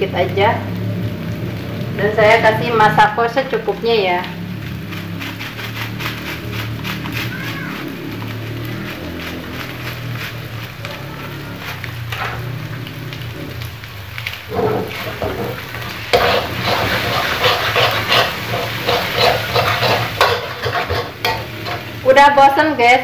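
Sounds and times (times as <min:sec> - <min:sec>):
food sizzling in a wok: 0:00.0 - 0:23.0
metal spatula scraping a wok: 0:04.8 - 0:07.3, 0:08.9 - 0:12.7, 0:14.5 - 0:22.0.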